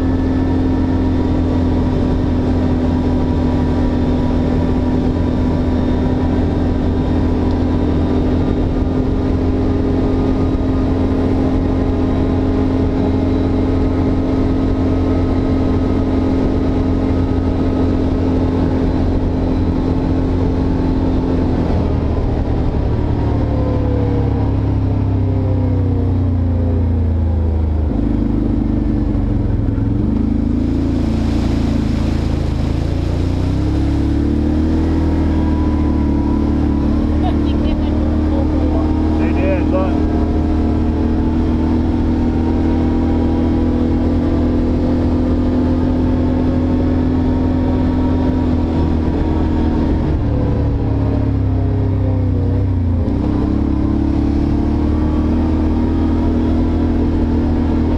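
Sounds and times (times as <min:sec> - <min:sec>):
atv engine running: 0:00.0 - 0:57.9.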